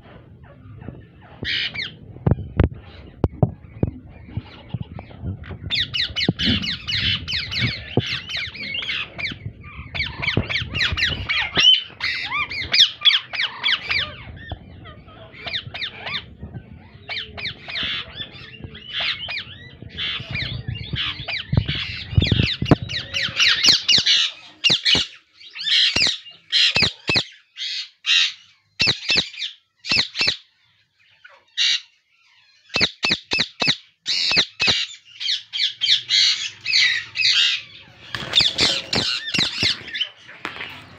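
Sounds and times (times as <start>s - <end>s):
low rumble: 0.0s - 12.8s
parakeet chicks calling rapidly: 0.5s - 30.5s, 31.1s - 40.9s
parakeets squawking: 0.8s - 30.5s, 31.1s - 40.9s.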